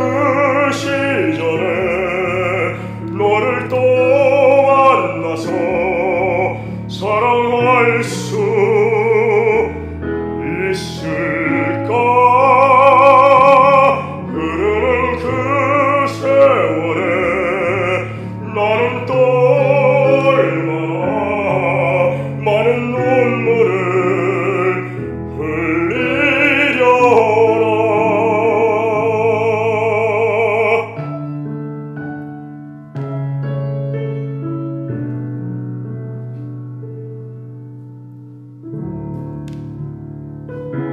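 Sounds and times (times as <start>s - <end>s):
man singing operatic ballad: 0.0s - 31.4s
keyboard accompaniment: 0.0s - 40.9s.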